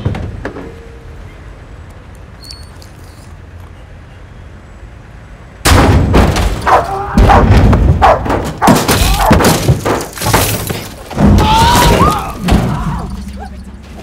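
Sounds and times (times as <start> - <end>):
banging and thumping on metal: 5.7 - 14.0
dog barking: 6.7 - 8.8.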